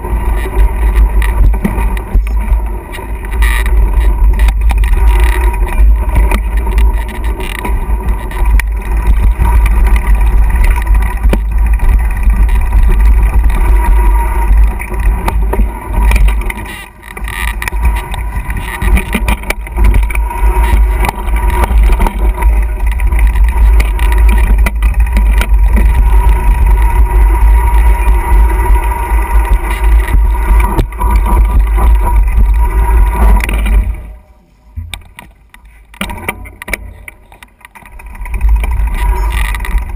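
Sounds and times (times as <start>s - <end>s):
bike rattling over rough trail: 0.0s - 39.9s.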